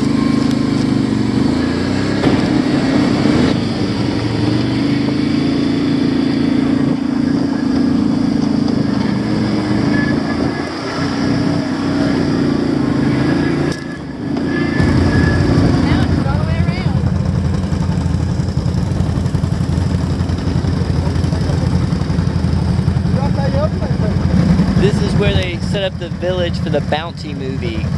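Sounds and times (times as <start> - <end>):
quad bike engine running: 0.0 - 27.9.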